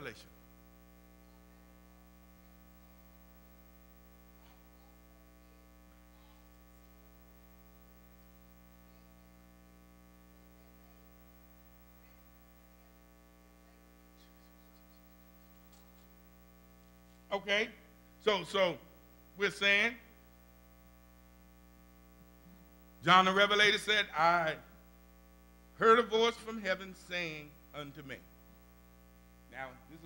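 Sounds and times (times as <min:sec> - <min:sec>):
electrical mains hum: 0:00.0 - 0:30.0.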